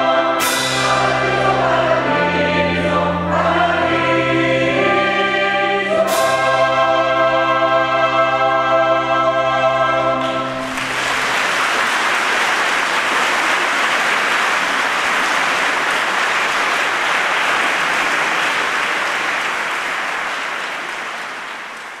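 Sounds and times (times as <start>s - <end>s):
choir final chord ringing: 0.0s - 11.3s
audience applauding: 10.2s - 22.0s.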